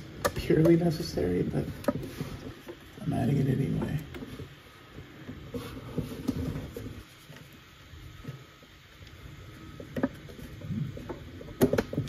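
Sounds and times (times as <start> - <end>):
plastic part clicking and knocking: 11.5 - 12.0.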